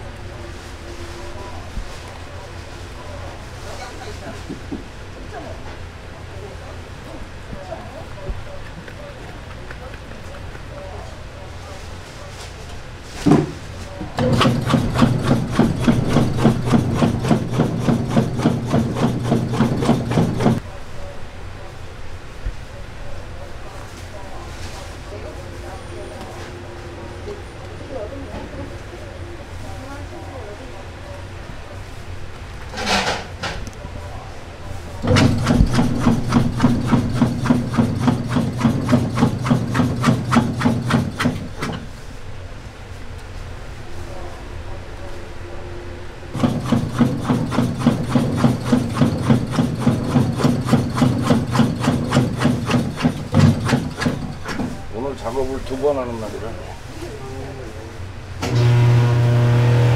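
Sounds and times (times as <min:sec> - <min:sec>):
sausage stuffing machine humming: 0:14.0 - 0:20.7, 0:34.9 - 0:42.2, 0:46.3 - 0:56.7, 0:58.4 - 0:59.9.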